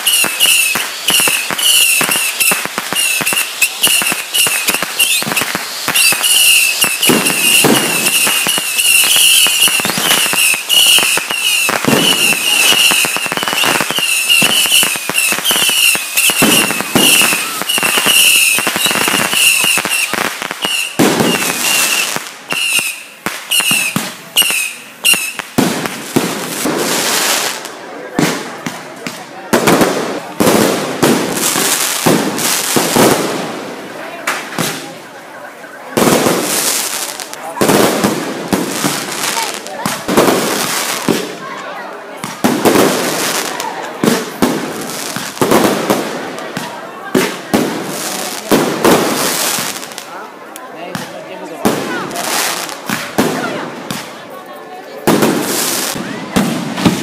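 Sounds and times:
firework whistle: 0.0 - 25.6
fireworks crackling and popping: 0.0 - 57.0.

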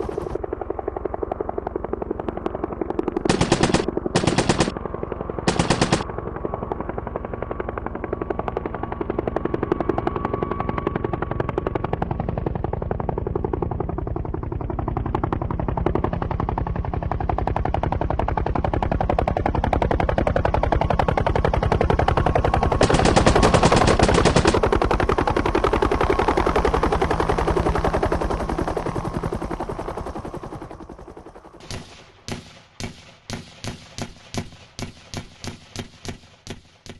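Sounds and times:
machine-gun fire: 3.3 - 4.7, 5.5 - 6.0, 22.8 - 24.6, 31.6 - 36.9
sharp gunshot pops: 31.6 - 36.9.

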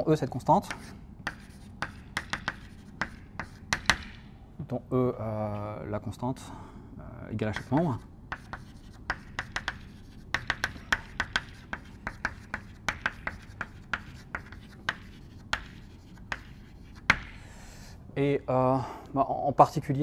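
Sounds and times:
chalk tapping and scratching: 0.6 - 4.3, 7.4 - 17.9.

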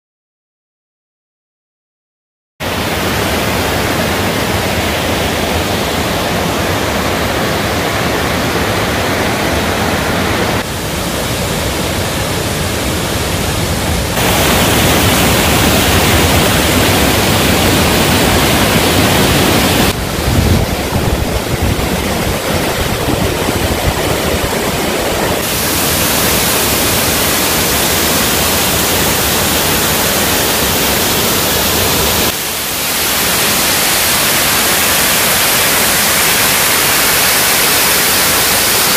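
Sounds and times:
stream tumbling over rocks: 14.2 - 38.8
waterfall pouring: 14.2 - 38.9.

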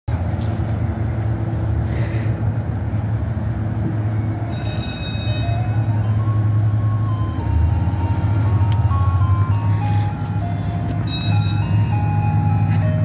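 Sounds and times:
ice cream truck music chime: 4.0 - 13.0.

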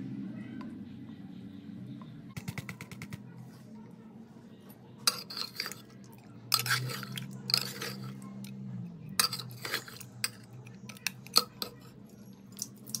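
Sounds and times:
metal spatula scraping pot: 5.0 - 12.1.

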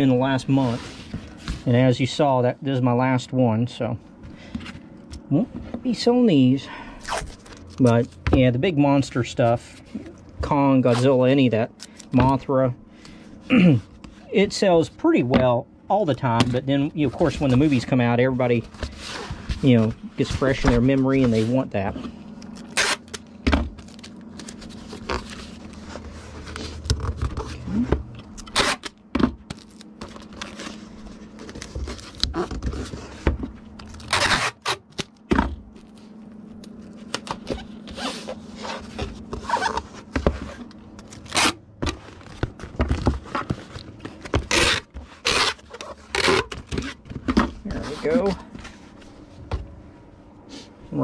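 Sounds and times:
cardboard and wrapping rustling: 0.0 - 2.2, 7.0 - 12.7, 16.2 - 49.6
tape being pulled: 22.6 - 23.2, 28.3 - 29.0, 33.8 - 35.1, 40.6 - 41.6, 44.4 - 47.0.

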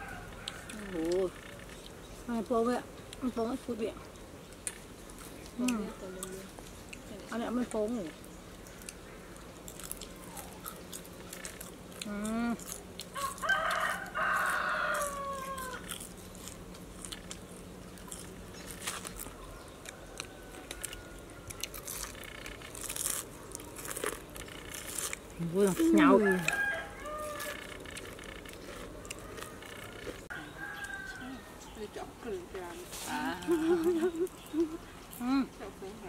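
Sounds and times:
rooster crowing: 0.0 - 1.0, 13.1 - 16.0, 19.3 - 22.1, 26.0 - 31.7.

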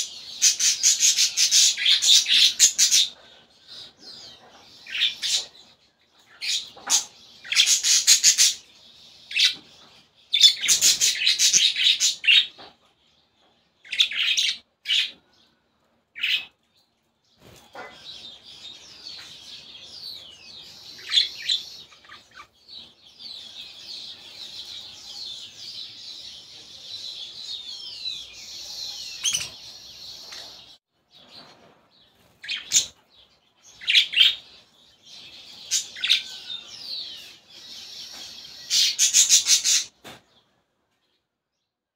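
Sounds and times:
budgerigar chicks rasping chirps: 17.5 - 18.3.

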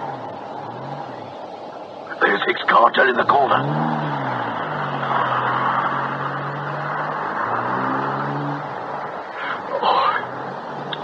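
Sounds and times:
car engine running: 0.0 - 11.0
road hiss: 0.0 - 11.0.

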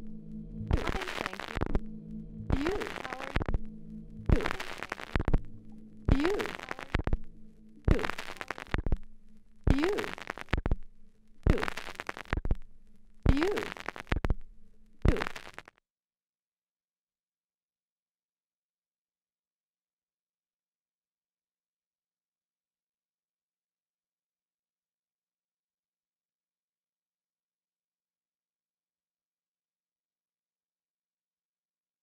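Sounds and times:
low steady hum: 0.0 - 15.0
turntable scratch loop: 0.6 - 1.8, 2.5 - 3.6, 4.2 - 5.5, 6.1 - 7.2, 7.8 - 9.0, 9.7 - 10.8, 11.4 - 12.6, 13.3 - 14.4, 15.0 - 15.6.

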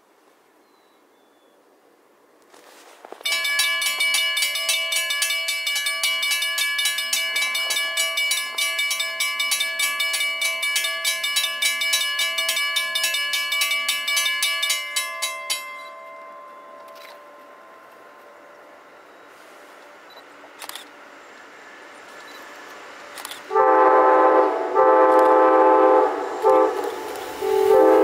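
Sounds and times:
crossing bell ringing: 3.2 - 21.2.

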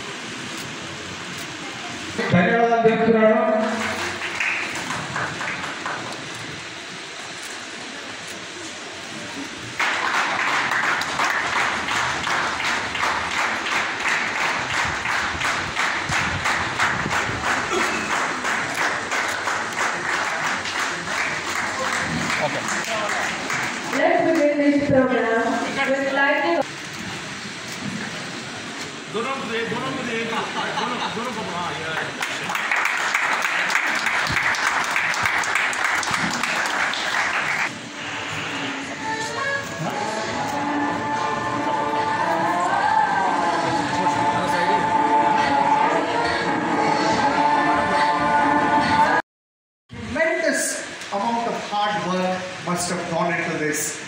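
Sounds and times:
audience applauding: 3.6 - 6.5, 9.7 - 24.6, 31.8 - 37.8.

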